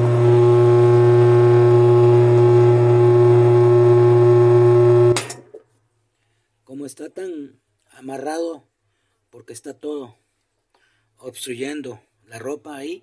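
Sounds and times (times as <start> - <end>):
washer motor humming: 0.0 - 5.1.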